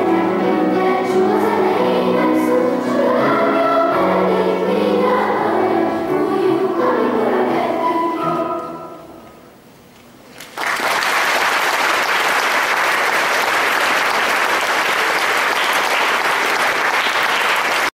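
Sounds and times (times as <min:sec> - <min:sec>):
children's choir singing: 0:00.0 - 0:09.4
piano: 0:00.0 - 0:10.2
audience applause: 0:10.4 - 0:18.0.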